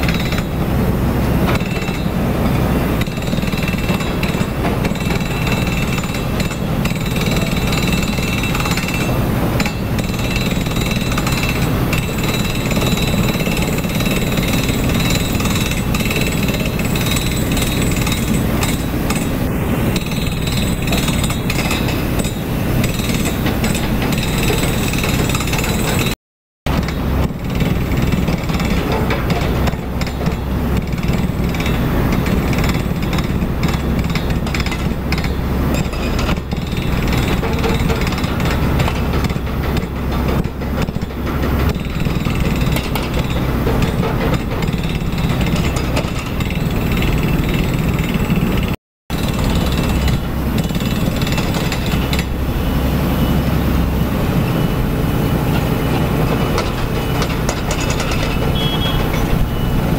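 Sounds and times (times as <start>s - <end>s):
diesel engines running: 0.0s - 59.9s.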